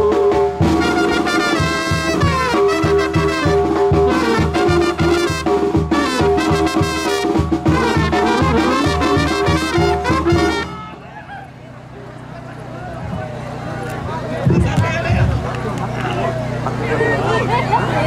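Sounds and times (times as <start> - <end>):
trumpets and trombones: 0.0 - 11.2
brass band playing: 0.0 - 11.3.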